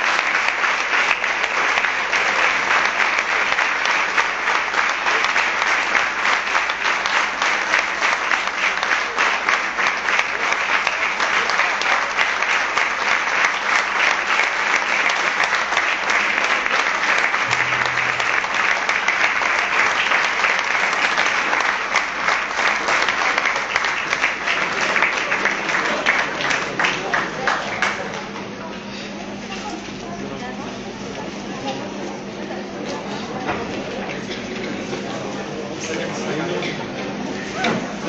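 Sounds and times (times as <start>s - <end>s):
audience applauding: 0.0s - 28.5s.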